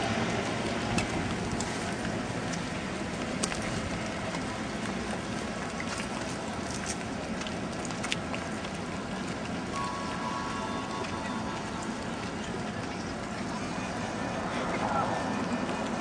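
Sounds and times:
distant street traffic: 0.0 - 16.0
faint steady tone: 9.7 - 16.0.

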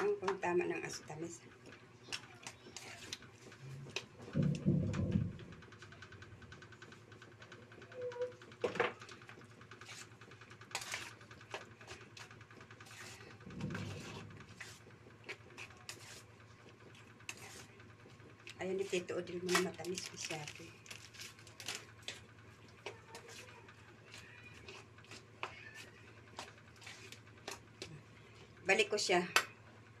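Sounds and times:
hand squelching sticky mixture: 9.4 - 28.6.

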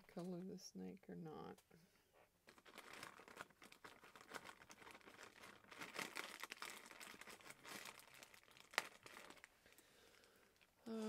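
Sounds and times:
paper towel crinkling: 2.5 - 9.5.

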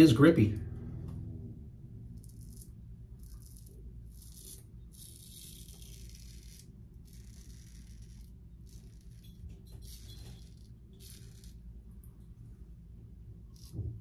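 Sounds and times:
low steady hum: 0.0 - 14.0
razor rasping on stubble: 2.2 - 11.7, 13.5 - 14.0.

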